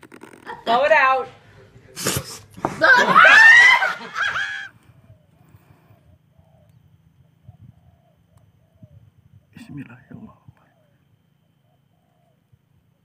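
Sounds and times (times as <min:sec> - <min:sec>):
woman shrieking laugh: 0:02.8 - 0:04.7.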